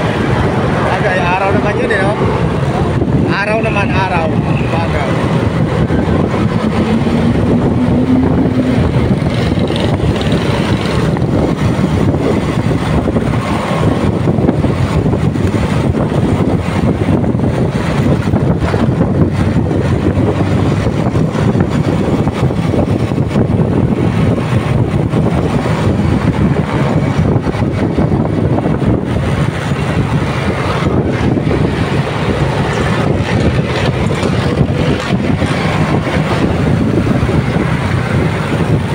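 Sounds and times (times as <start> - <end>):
motorcycle engine rumble: 0.0 - 38.9
road noise: 0.0 - 38.9
wind buffeting microphone: 0.0 - 38.9
short rising whine: 5.8 - 9.8.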